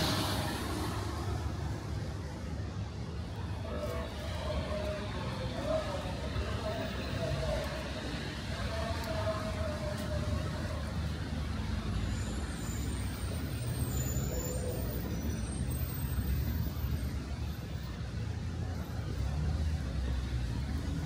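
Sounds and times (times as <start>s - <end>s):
tyres hissing on wet road: 0.0s - 2.0s, 3.4s - 17.1s
passing vehicles rumbling: 0.0s - 21.0s.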